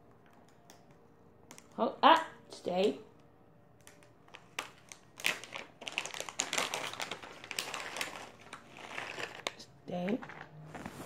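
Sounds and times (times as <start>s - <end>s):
packet rustling and crinkling: 3.9s - 11.0s.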